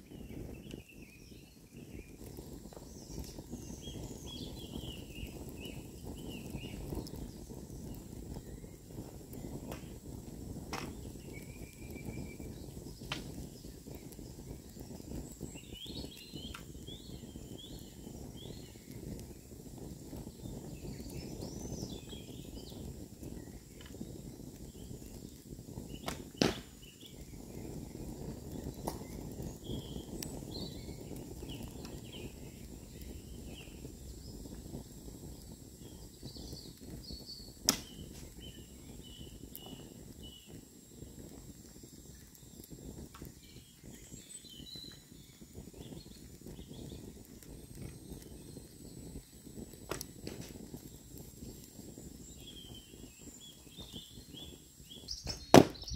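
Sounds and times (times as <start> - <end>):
birds singing: 0.0 - 55.9
bowstring snap: 37.7 - 38.0.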